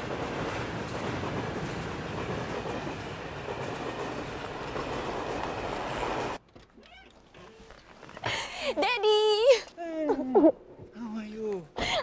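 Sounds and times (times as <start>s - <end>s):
train running on rails: 0.0s - 6.4s.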